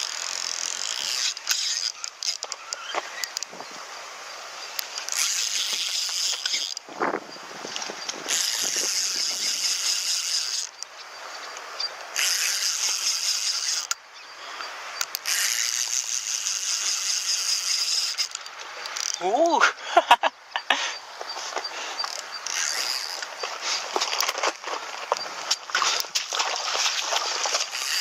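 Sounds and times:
fishing reel gears rattling: 0:00.0 - 0:03.5, 0:04.7 - 0:06.9, 0:07.8 - 0:10.9, 0:11.8 - 0:14.0, 0:15.0 - 0:19.3, 0:22.0 - 0:24.4, 0:25.1 - 0:28.0.

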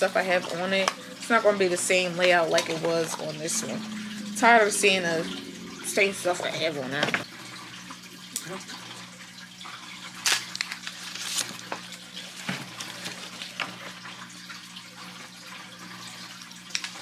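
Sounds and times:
aquarium water trickling: 0:00.0 - 0:17.0
low hum: 0:01.0 - 0:08.2
plastic wrapping crinkling: 0:10.1 - 0:13.9.

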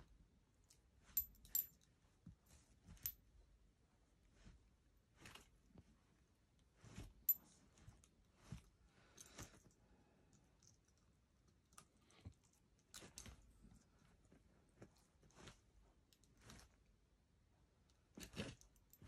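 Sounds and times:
metallic collar clink: 0:01.2 - 0:01.8.

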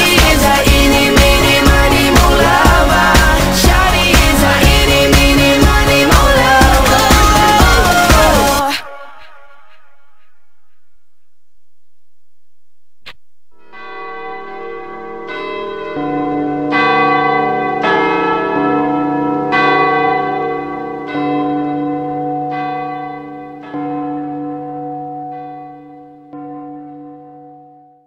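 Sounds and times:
bells ringing: 0:13.6 - 0:27.6.

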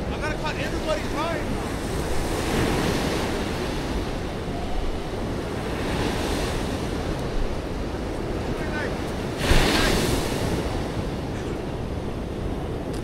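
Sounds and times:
ocean surf breaking on beach: 0:00.0 - 0:13.0
wind rumbling on microphone: 0:00.0 - 0:13.0.

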